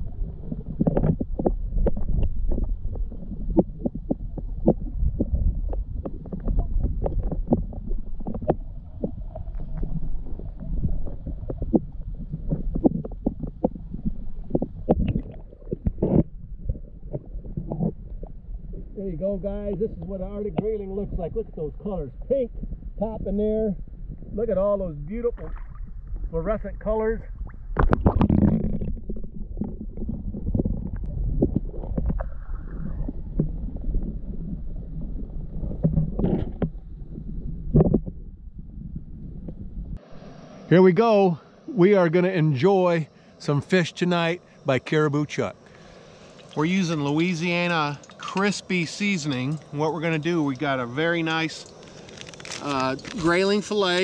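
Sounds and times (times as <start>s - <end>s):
underwater clicks and knocks: 0.0s - 18.9s, 27.4s - 32.5s, 33.2s - 34.6s, 35.5s - 37.0s, 37.6s - 38.2s
underwater water rumble: 0.0s - 54.0s.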